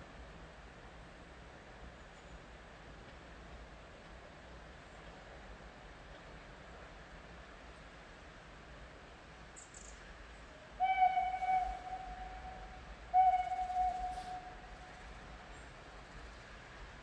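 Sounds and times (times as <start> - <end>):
steam locomotive whistle: 10.8 - 15.4.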